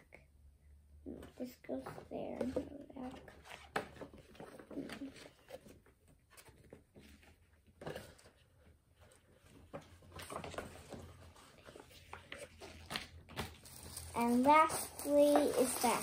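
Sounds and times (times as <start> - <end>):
paper rustling and crinkling: 1.7 - 16.0.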